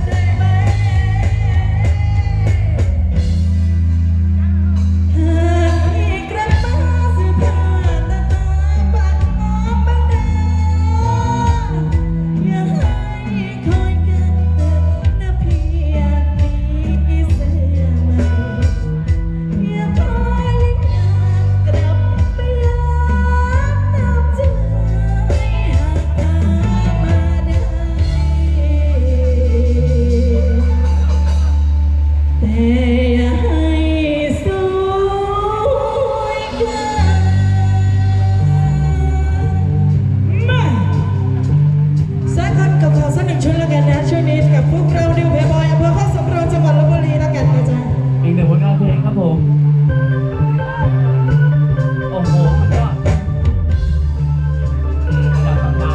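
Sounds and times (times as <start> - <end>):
guitar: 0.0 - 55.9
loud pop music with singer: 0.0 - 55.9
held bass note: 36.5 - 55.9.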